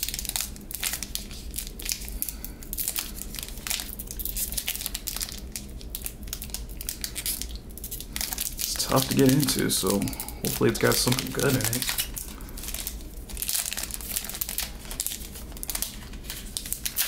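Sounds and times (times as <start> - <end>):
foil wrapper crinkling: 0.0 - 17.0.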